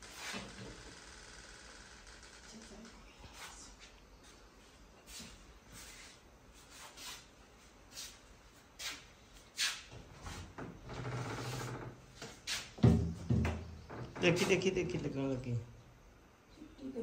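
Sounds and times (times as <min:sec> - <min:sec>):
knocks: 0:12.8 - 0:14.6.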